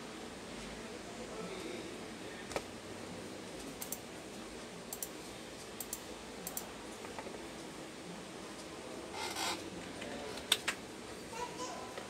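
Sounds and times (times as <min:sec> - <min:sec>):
computer mouse clicking: 0:03.8 - 0:04.0, 0:04.9 - 0:05.1, 0:05.8 - 0:06.7.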